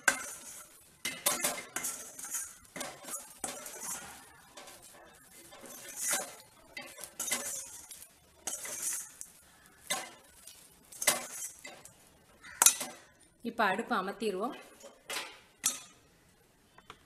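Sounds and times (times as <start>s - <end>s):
metal spoon scraping a pan: 0.0s - 13.1s.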